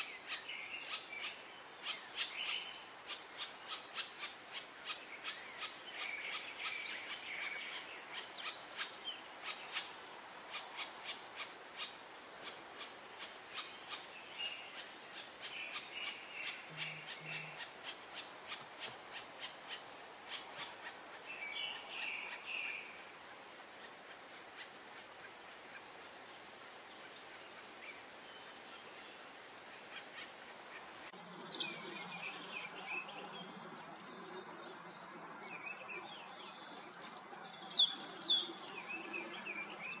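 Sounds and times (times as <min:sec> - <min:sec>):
songbird chirping and twittering: 0:00.0 - 0:40.0
woodpecker nestlings rasping calls: 0:03.1 - 0:09.9, 0:10.5 - 0:14.1, 0:14.7 - 0:22.4, 0:23.0 - 0:28.0, 0:29.8 - 0:30.5.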